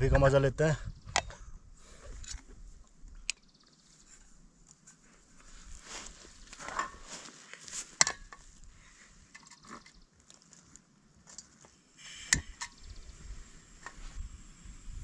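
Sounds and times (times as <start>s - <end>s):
camp stove handling clicks and knocks: 6.6s - 7.0s, 8.0s - 8.4s.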